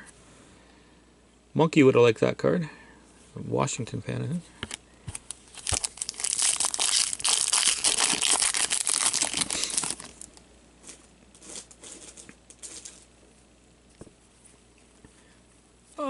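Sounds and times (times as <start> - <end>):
cards rustling and clicking: 4.6 - 10.4
foil wrapper crinkling and tearing: 4.7 - 10.4.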